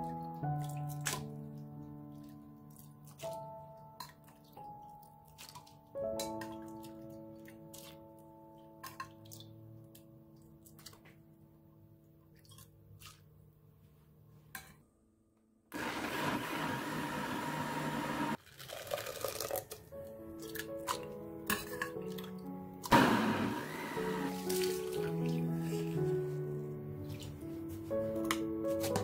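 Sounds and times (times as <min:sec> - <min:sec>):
background music: 0:00.0 - 0:11.5, 0:19.5 - 0:29.0
blender grinding: 0:15.8 - 0:18.8, 0:22.9 - 0:24.7.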